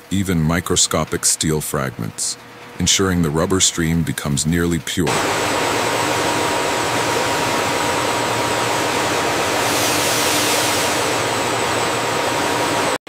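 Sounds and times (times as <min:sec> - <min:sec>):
machinery hiss: 0:05.1 - 0:12.9.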